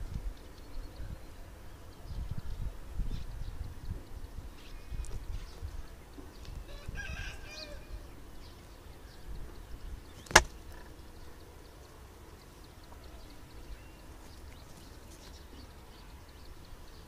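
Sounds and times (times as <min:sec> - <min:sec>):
sharp click: 0:10.2 - 0:10.6.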